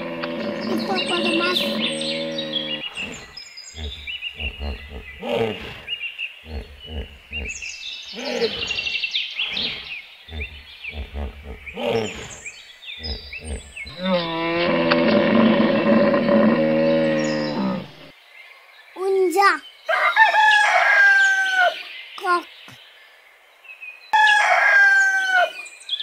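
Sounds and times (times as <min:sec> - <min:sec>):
hippopotamus bellowing: 0:00.0 - 0:18.1
hippopotamus grunts: 0:00.0 - 0:18.1
birds chirping faintly: 0:00.0 - 0:26.0.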